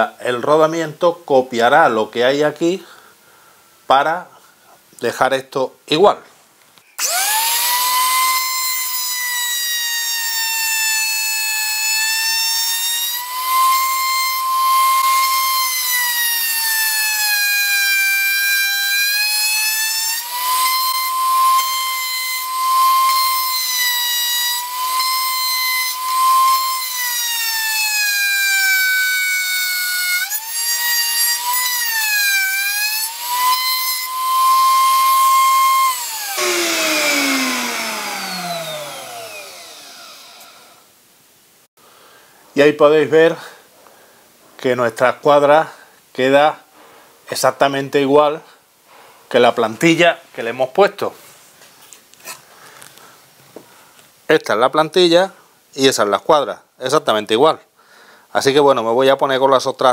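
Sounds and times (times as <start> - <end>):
router whining: 7.0 - 40.9.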